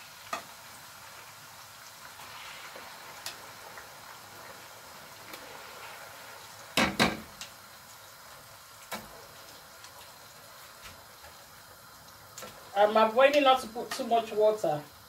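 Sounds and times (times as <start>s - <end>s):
food sizzling in oil: 0.0s - 15.0s.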